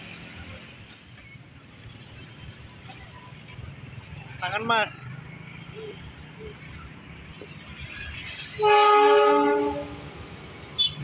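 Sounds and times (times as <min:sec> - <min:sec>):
locomotive horn blast: 0:08.6 - 0:10.1.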